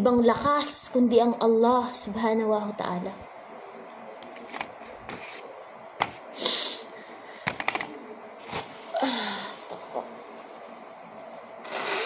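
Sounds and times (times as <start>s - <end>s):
steady low hiss: 0.0s - 11.7s
hand rustling on paper: 4.3s - 6.2s.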